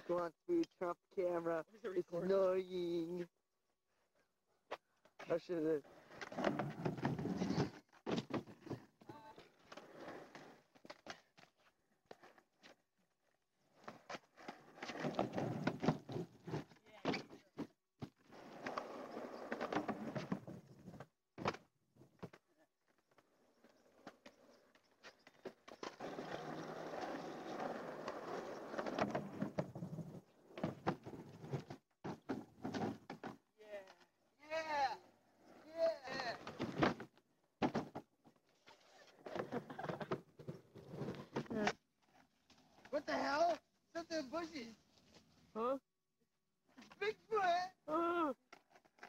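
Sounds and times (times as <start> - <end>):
skateboard wheels rolling: 5.8 - 17.4, 18.0 - 34.0, 34.6 - 43.6
skateboard clicks and knocks: 18.4 - 34.2, 38.6 - 43.6.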